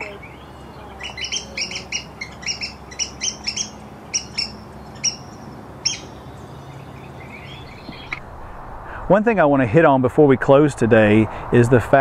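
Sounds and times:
woodpeckers calling: 0:00.0 - 0:08.2.

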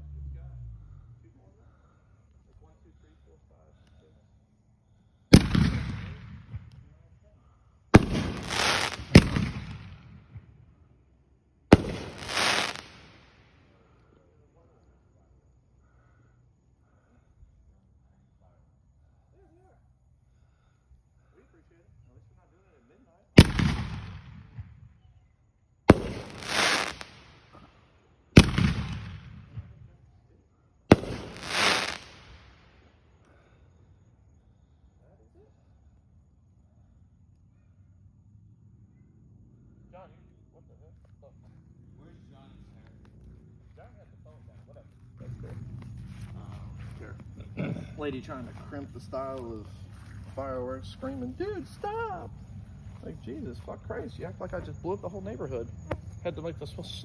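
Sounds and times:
fireworks bursting: 0:05.3 - 0:06.7, 0:07.9 - 0:10.5, 0:11.7 - 0:13.4, 0:23.4 - 0:24.7, 0:25.9 - 0:27.7, 0:28.4 - 0:29.7, 0:30.9 - 0:32.7.

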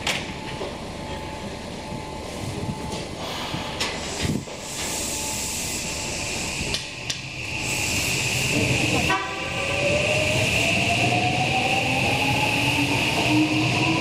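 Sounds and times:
subway train rumble: 0:00.0 - 0:14.0
rising hiss: 0:03.2 - 0:11.2.

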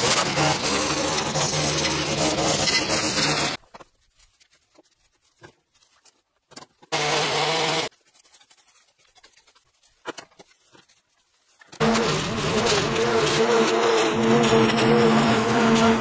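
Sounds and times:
faint clicks and rustles: 0:07.9 - 0:11.8
lawnmower engine running: 0:11.8 - 0:16.0.

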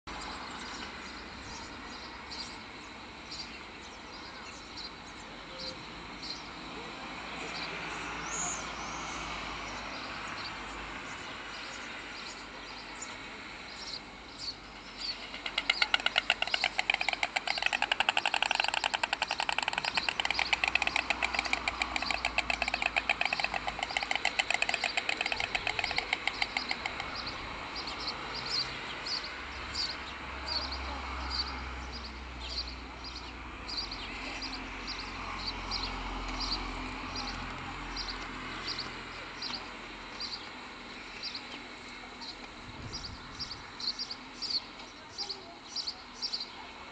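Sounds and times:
small birds chirping: 0:00.1 - 0:06.6, 0:07.3 - 0:46.9
storks bill-clattering: 0:14.8 - 0:28.7.

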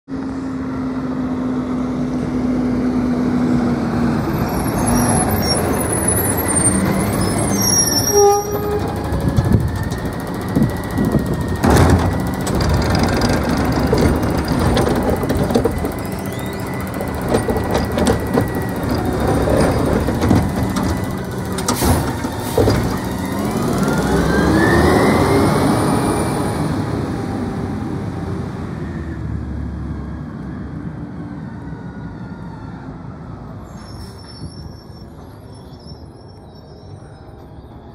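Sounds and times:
diesel engine running: 0:00.1 - 0:29.6
garbage cart clanking into hopper: 0:11.1 - 0:23.6.

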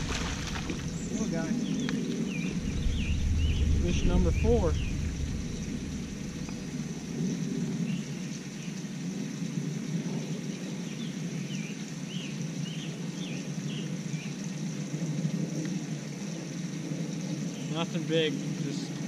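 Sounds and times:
low rumbling noise: 0:00.0 - 0:08.4.

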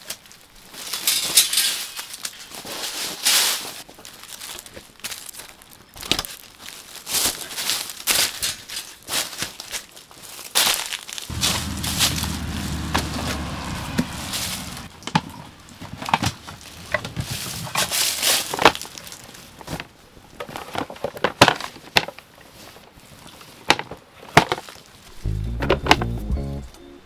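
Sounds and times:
rustling of camping gear: 0:00.0 - 0:25.2
knocks and clicks of gear: 0:25.2 - 0:26.7.

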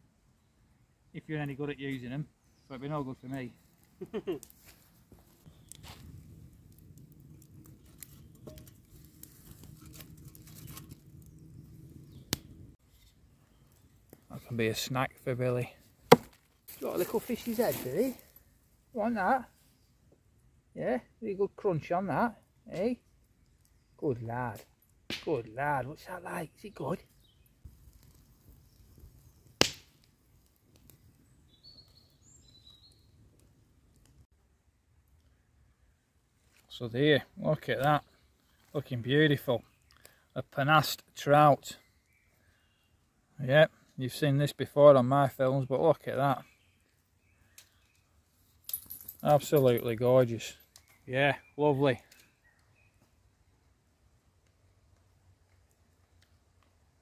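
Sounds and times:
campfire crackling and popping: 0:03.3 - 0:18.6, 0:22.2 - 0:25.7, 0:26.8 - 0:35.4, 0:37.4 - 0:42.3, 0:46.1 - 0:51.2, 0:51.9 - 0:57.0
sticks shifted in fire: 0:07.0 - 0:13.2
faint high bird chirps: 0:31.2 - 0:33.2.

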